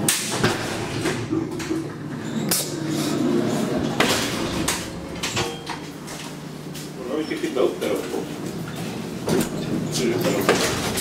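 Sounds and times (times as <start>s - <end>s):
steady low hum: 0.4s - 9.1s
elevator door mechanism clunks: 3.7s - 6.1s.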